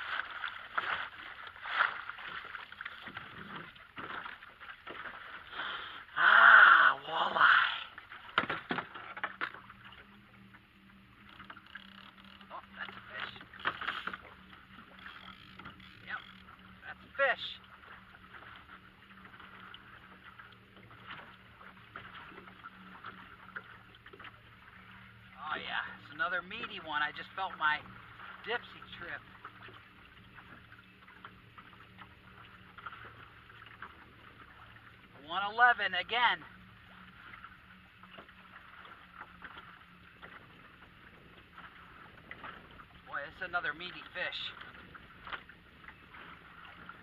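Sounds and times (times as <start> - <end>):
boat motor running: 0.0 - 47.0
small ticks: 11.2 - 12.5.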